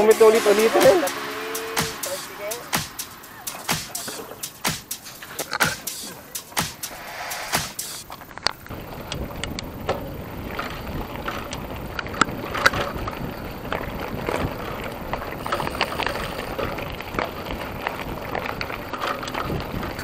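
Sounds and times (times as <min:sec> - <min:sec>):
wind on microphone: 0:08.3 - 0:20.0.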